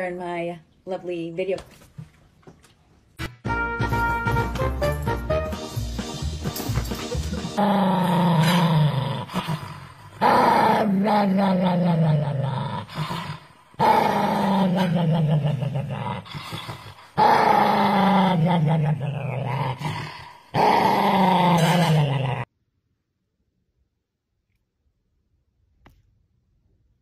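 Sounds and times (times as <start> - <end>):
small dog growling: 7.6 - 22.5.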